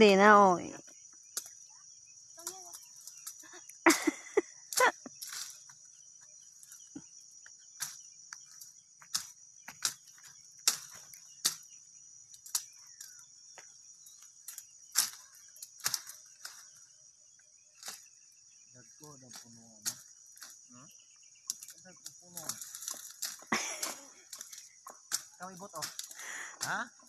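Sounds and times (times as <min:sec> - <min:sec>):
insects chirring: 0:00.0 - 0:27.0
plant stalks snapping and crackling: 0:02.4 - 0:03.6, 0:04.7 - 0:05.8, 0:07.8 - 0:16.8, 0:17.8 - 0:18.1, 0:19.3 - 0:20.6, 0:21.4 - 0:26.8.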